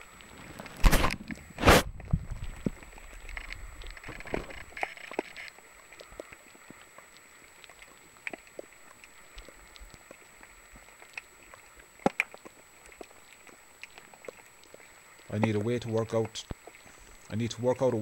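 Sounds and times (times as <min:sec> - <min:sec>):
camera clicking and crackling: 0:03.3 - 0:05.6
camera knocking on seabed: 0:03.4 - 0:05.5.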